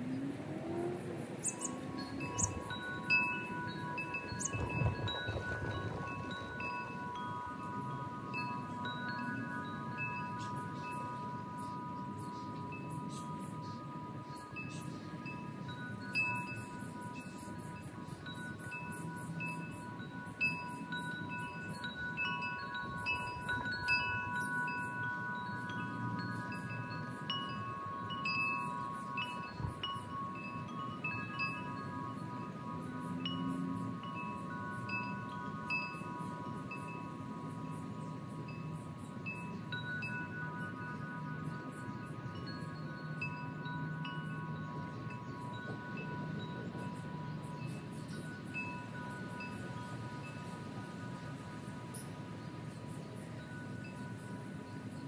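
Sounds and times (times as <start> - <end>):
birds chirping: 0.0 - 20.0, 33.1 - 53.9
metal wind chimes ringing: 0.0 - 55.0.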